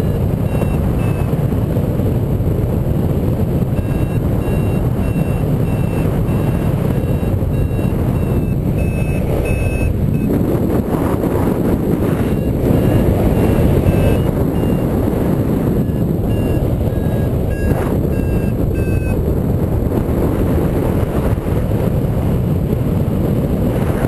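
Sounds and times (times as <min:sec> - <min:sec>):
short high beeps: 0:00.0 - 0:01.3, 0:03.8 - 0:10.3, 0:12.1 - 0:14.9, 0:15.7 - 0:19.2
wind buffeting microphone: 0:00.0 - 0:24.0.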